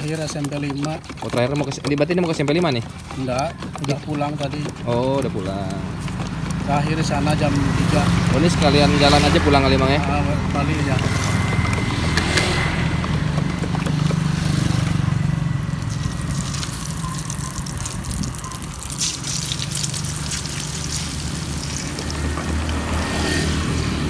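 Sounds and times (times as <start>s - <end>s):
egg sizzling in hot oil: 15.7s - 24.0s.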